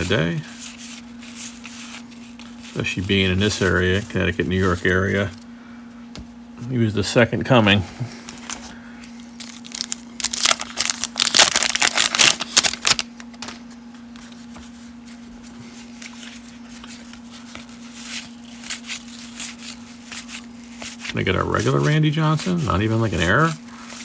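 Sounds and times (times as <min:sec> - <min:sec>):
cards rustling: 0:00.0 - 0:05.4, 0:08.2 - 0:24.0
wax paper wrapper tearing: 0:09.4 - 0:13.5, 0:15.9 - 0:24.0.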